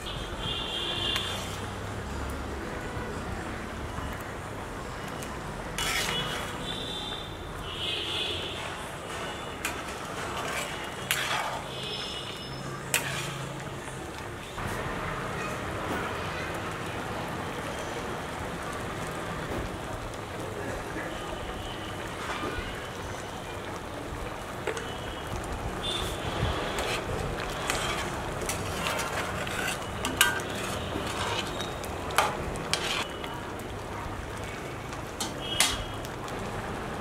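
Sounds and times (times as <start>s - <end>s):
curry bubbling with hiss: 0.0s - 37.0s
metal spoon clinking on pan: 9.6s - 11.7s, 27.6s - 33.1s.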